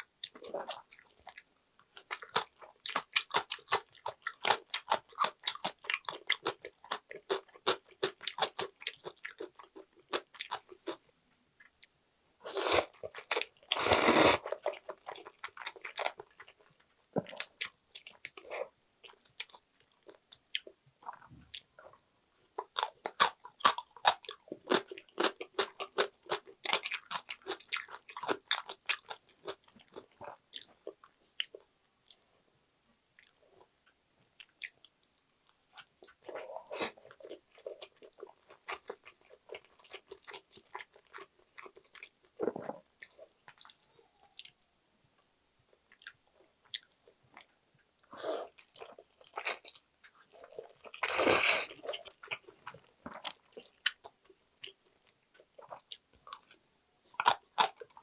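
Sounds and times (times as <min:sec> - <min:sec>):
wet chewing of noodles: 0:00.2 - 0:11.0, 0:11.6 - 0:21.9, 0:22.5 - 0:32.3, 0:34.4 - 0:44.6, 0:45.7 - 0:47.5, 0:48.1 - 0:56.6, 0:57.2 - 0:58.0
noodle slurps: 0:13.7 - 0:14.5.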